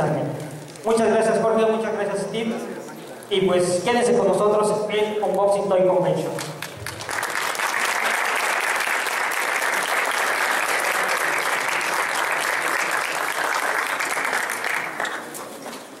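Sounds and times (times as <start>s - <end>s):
audience applauding: 6.4s - 15.6s.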